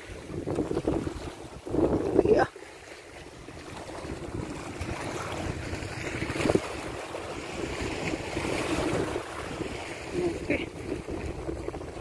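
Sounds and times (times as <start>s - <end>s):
small waves washing against rocks: 0.0s - 12.0s
wind buffeting microphone: 0.0s - 12.0s.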